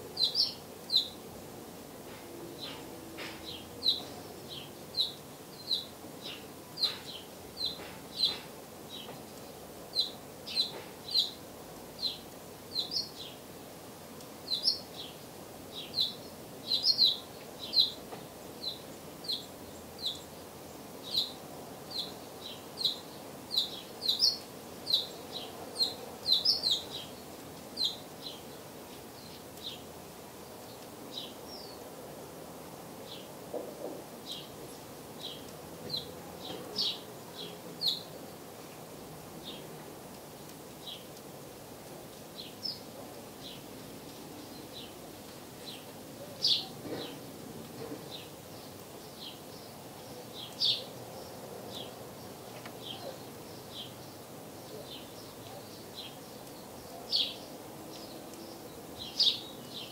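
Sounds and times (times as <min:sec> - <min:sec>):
nestlings chirping: 0:00.2 - 0:01.2, 0:02.6 - 0:11.4, 0:14.5 - 0:29.9, 0:42.3 - 0:59.9.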